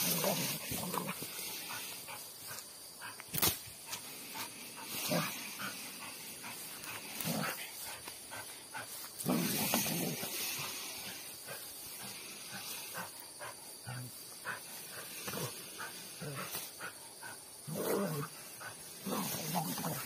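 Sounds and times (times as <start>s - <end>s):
small dog growling: 0.0s - 1.5s.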